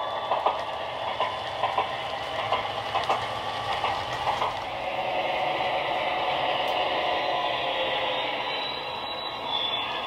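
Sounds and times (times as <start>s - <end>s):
model train wheels clicking on track: 0.0s - 7.0s.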